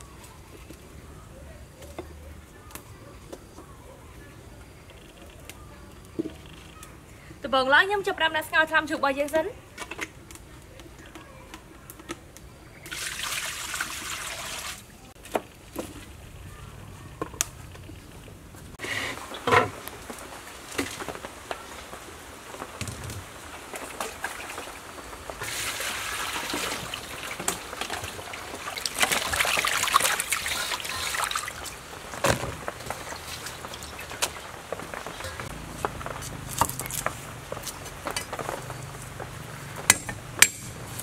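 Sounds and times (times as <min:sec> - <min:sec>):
water sloshing in a steel basin: 0:12.8 - 0:15.0, 0:23.7 - 0:31.9.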